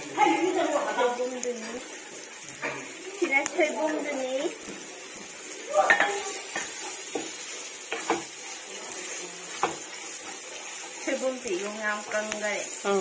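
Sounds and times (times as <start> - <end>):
food sizzling: 0.0 - 13.0
spatula scraping a wok: 5.9 - 13.0.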